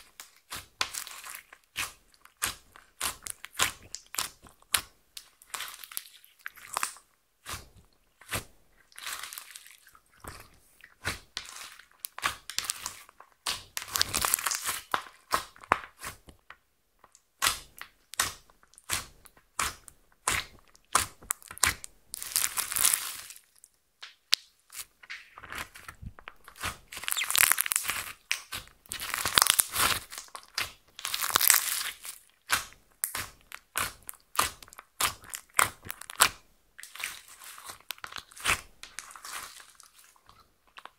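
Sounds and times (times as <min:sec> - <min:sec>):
slime crackling: 0:08.2 - 0:16.2, 0:17.4 - 0:23.6, 0:24.7 - 0:40.9.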